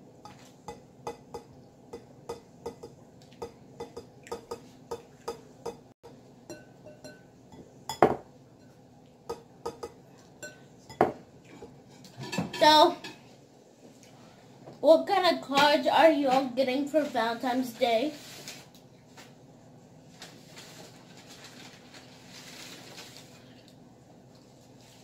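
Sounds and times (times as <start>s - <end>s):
snacks clicking on glass bowls: 0.3s - 5.9s.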